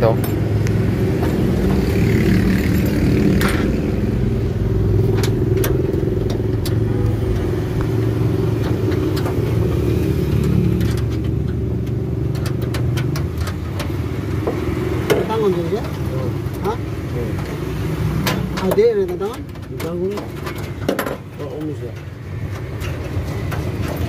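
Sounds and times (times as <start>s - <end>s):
traffic engines rumbling: 0.0s - 24.0s
wrench clicking on bolts: 5.1s - 16.7s.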